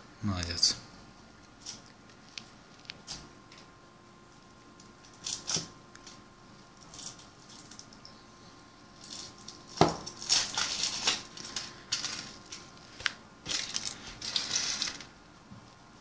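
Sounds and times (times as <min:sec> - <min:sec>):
foil wrapper crinkling: 0:09.0 - 0:15.1.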